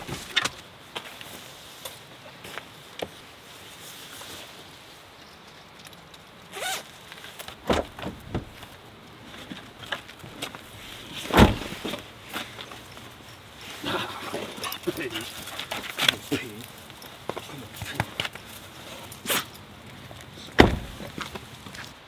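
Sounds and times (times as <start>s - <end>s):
nylon jacket rustling: 6.5s - 6.9s
jacket zipper zipping: 6.6s - 6.8s
truck door shutting thump: 7.6s - 8.6s, 11.3s - 11.9s, 20.6s - 21.1s.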